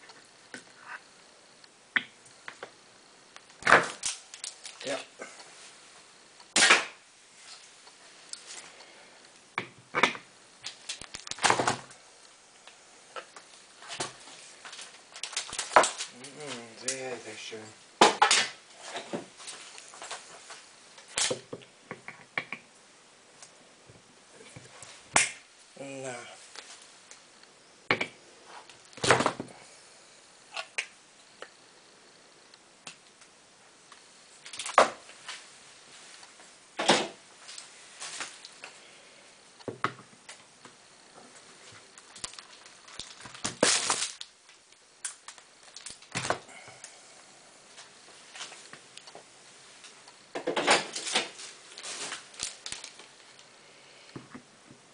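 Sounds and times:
crackling scrape: 40.9 - 46.2, 50.8 - 53.6.

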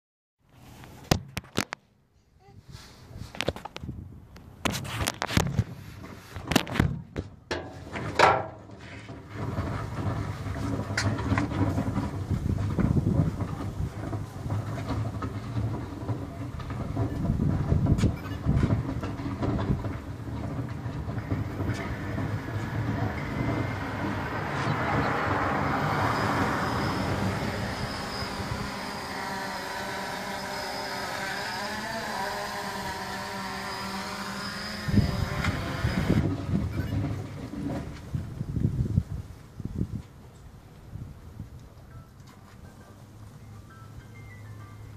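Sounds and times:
quadcopter propellers whining: 18.1 - 37.2
car passing: 21.7 - 30.2.

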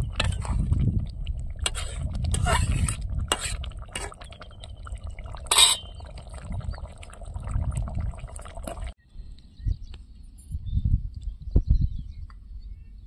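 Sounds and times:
low rumbling noise: 0.0 - 9.0.

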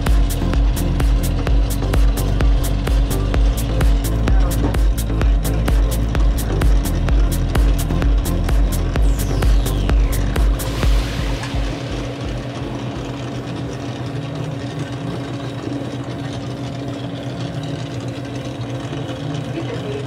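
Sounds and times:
brazing torch burning: 0.0 - 15.8
low mechanical hum: 0.0 - 20.0.

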